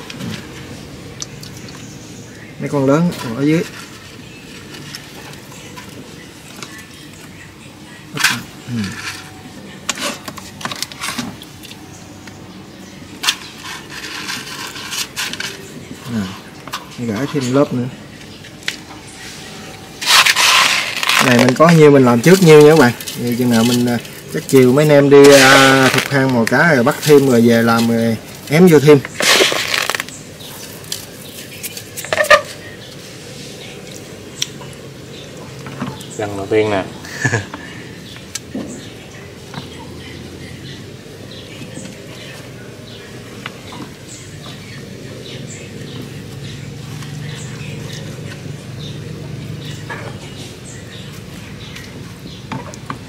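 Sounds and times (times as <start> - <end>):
salt crunching against clay jar: 20.0 - 32.7.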